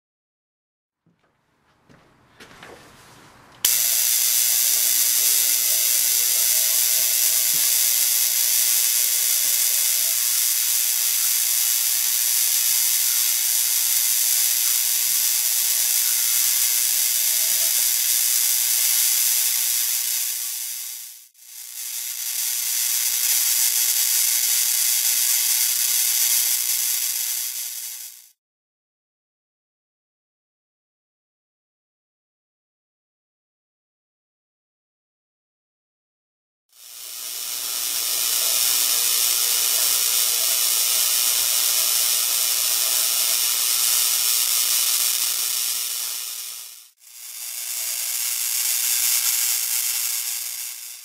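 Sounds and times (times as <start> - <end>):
high-voltage discharge hiss: 3.7 - 28.3, 36.8 - 51.0.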